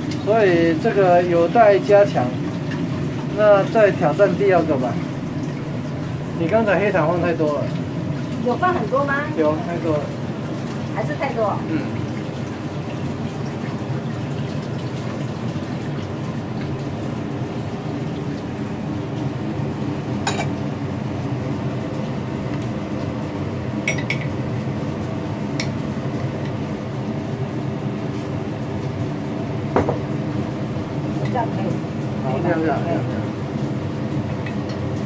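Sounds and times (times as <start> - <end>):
steady mechanical hum: 0.0 - 35.0.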